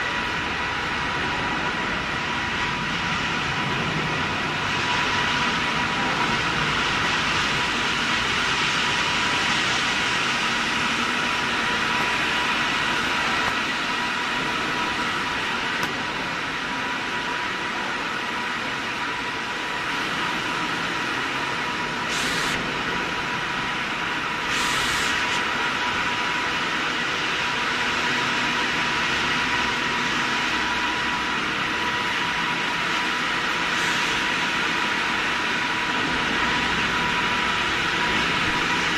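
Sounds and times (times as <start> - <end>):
stone-cutting machinery whine: 0.0 - 38.9
short hissing bursts: 22.1 - 22.6, 24.5 - 25.3.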